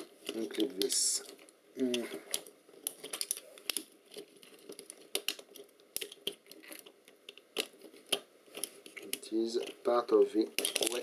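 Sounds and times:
plastic parts clicking and tapping: 0.0s - 11.0s.

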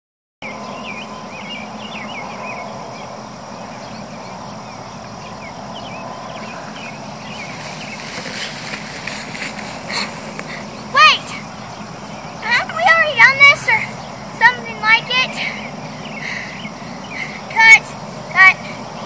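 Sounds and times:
birds chirping: 0.4s - 19.0s
outdoor background noise: 0.4s - 19.0s
rustling in grass: 6.4s - 12.4s.

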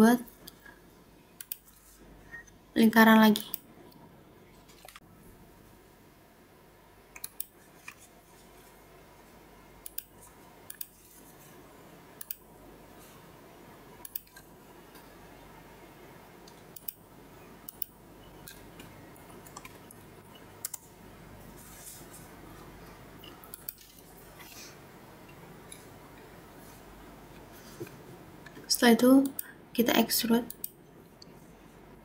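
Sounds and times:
faint background hiss: 0.0s - 32.0s
computer mouse clicks: 1.4s - 1.8s, 7.1s - 8.0s, 9.8s - 11.0s, 12.2s - 12.4s, 14.0s - 14.4s, 16.5s - 17.0s, 17.6s - 20.0s, 20.6s - 20.9s, 23.2s - 23.9s, 30.5s - 31.3s.

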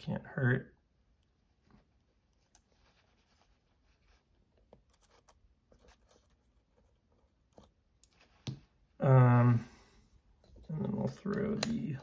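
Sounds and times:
faint ticks and scratches: 1.2s - 8.6s.

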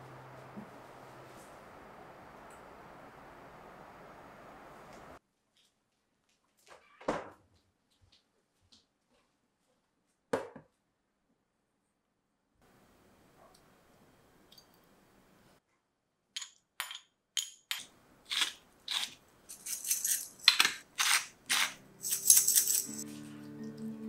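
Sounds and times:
spice grinder grinding: 17.8s - 23.0s
background music: 21.5s - 24.0s.

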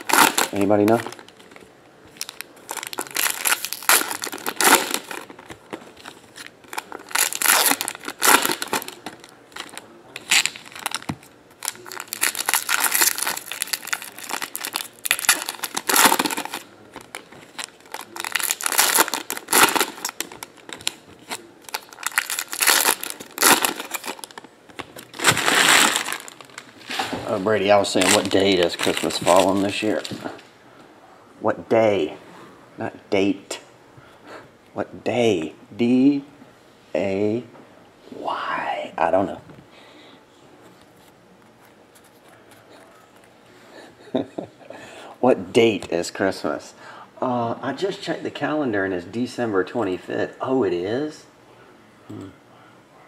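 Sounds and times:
foil wrappers tearing and crinkling: 0.0s - 1.6s, 2.2s - 27.0s, 27.8s - 30.1s.

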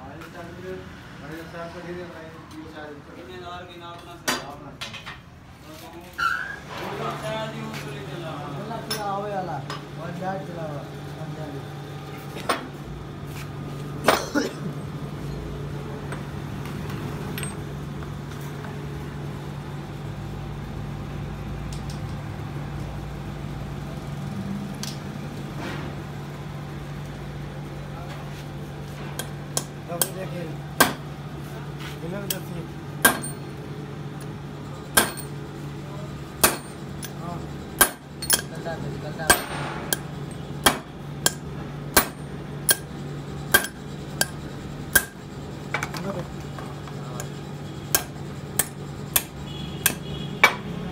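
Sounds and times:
hammer striking steel drift: 39.3s - 42.9s, 43.5s - 45.2s.

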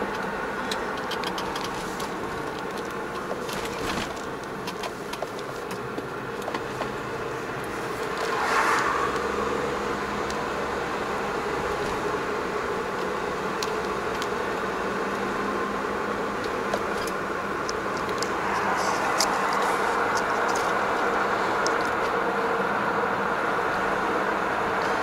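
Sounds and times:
light clicks and rattles: 0.0s - 6.9s
engine and road noise in cab: 0.0s - 25.0s.

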